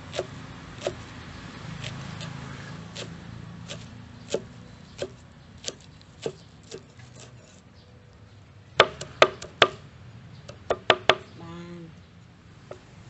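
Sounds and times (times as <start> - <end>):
cleaver chopping on wooden board: 0.0 - 1.0, 2.9 - 7.3, 8.8 - 9.8, 10.5 - 11.2.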